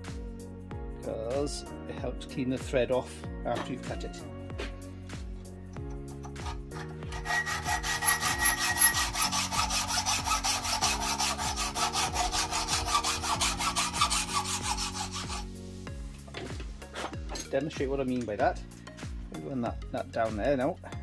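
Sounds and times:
background music: 0.0 - 21.0
hacksaw cutting metal: 6.2 - 15.5.

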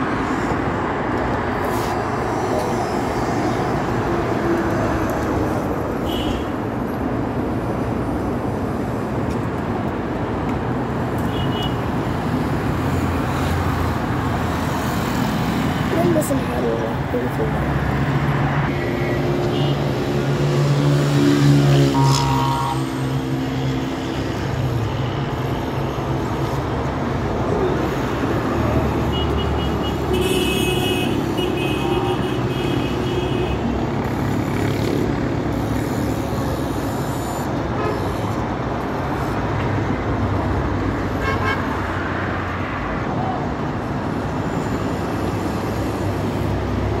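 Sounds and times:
city street traffic rumble: 0.0 - 47.0
car horns beeping: 21.9 - 23.0.

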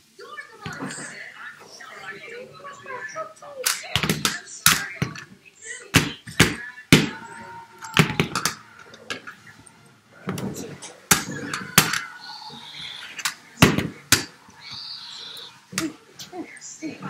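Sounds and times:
plastic toys clacking: 3.6 - 16.0.

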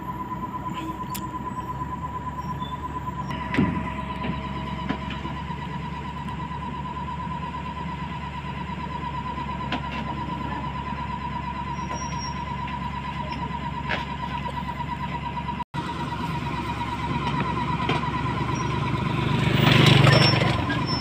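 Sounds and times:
high-pitched tone: 0.0 - 8.0
diesel engine idling: 0.0 - 21.0.

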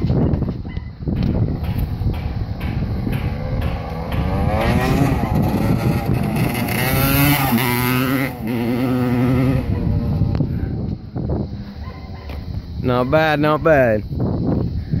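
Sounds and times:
dirt bike engine accelerating: 1.4 - 11.4.

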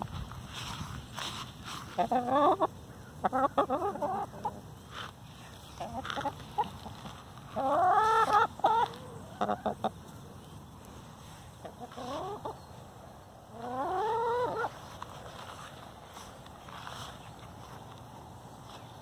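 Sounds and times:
hen clucking: 1.2 - 10.3, 11.5 - 15.3.

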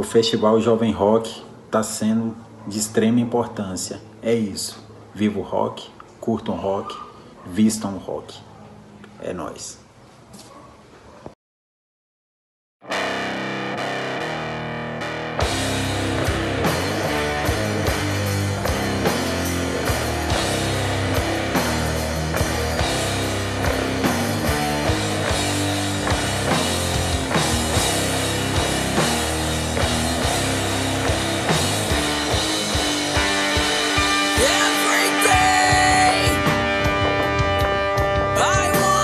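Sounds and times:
loud rock band playing: 12.9 - 39.0.

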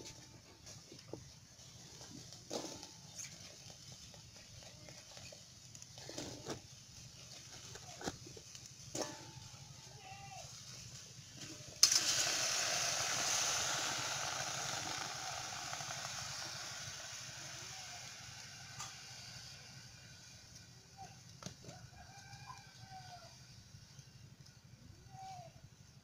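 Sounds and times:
vegetables sizzling in a hot pan: 10.5 - 20.7.

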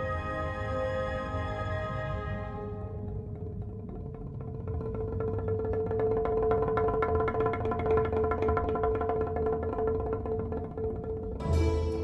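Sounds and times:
held note with plucked notes: 11.3 - 12.0.

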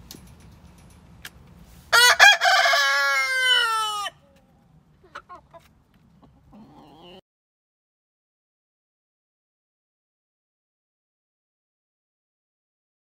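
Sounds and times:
rooster crowing: 1.9 - 4.2
hen clucks: 4.1 - 7.2.

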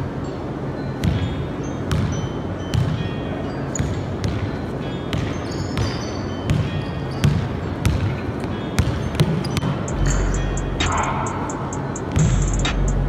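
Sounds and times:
sneaker squeaks: 0.8 - 12.4
basketball bouncing on gym floor: 1.0 - 3.1, 3.7 - 10.2.

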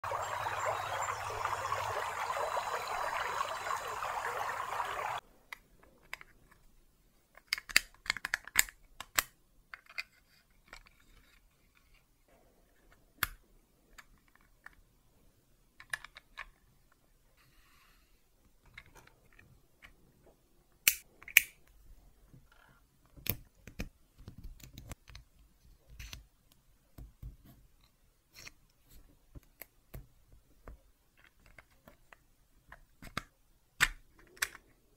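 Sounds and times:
plastic parts clicking and snapping: 5.5 - 11.9, 15.8 - 16.8, 18.4 - 20.0, 20.8 - 21.8, 22.5 - 27.2, 29.3 - 34.8.

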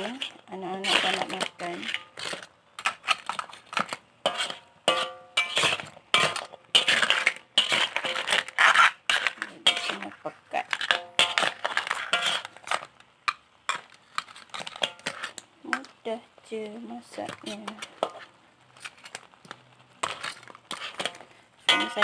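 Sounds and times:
metal spatula scraping metal pot: 0.0 - 12.9, 13.7 - 15.9, 17.2 - 19.2, 20.0 - 22.0
metallic ring from pot: 4.9 - 5.6.

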